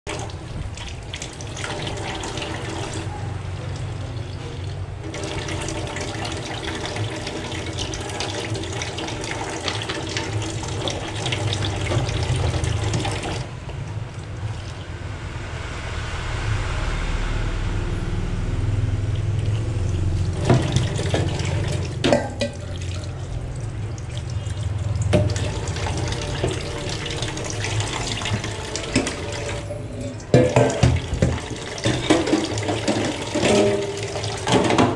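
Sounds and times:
metal bowls clinking: 0:20.3 - 0:23.2, 0:28.9 - 0:34.8
tap running into sink: 0:20.4 - 0:22.8, 0:30.3 - 0:34.9.

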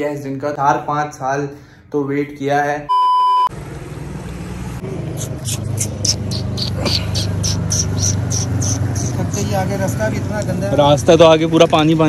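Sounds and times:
test-tone beep: 0:02.9 - 0:03.5
rhythmic high chirping: 0:05.2 - 0:09.4.

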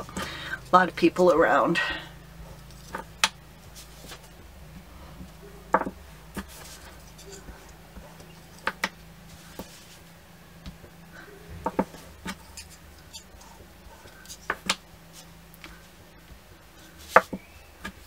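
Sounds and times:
faint steady hum: 0:00.0 - 0:18.0.

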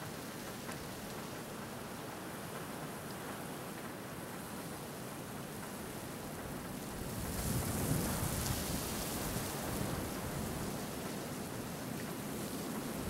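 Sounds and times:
snowstorm wind hissing: 0:07.0 - 0:13.0.

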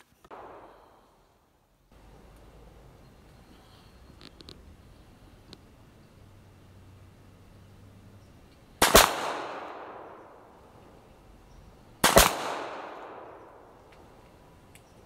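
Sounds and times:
pistol shots with echo: 0:00.3 - 0:01.1, 0:08.8 - 0:10.6, 0:12.0 - 0:13.9.

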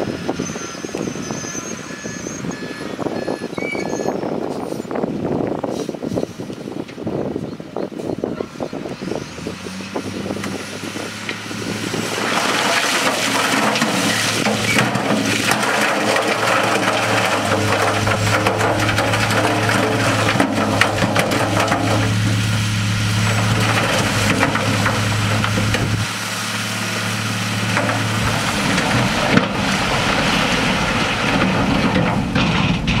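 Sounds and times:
diesel truck engine revving: 0:08.4 - 0:33.0
rock and soil sliding out: 0:09.9 - 0:33.0
stones knocking: 0:12.1 - 0:26.0.

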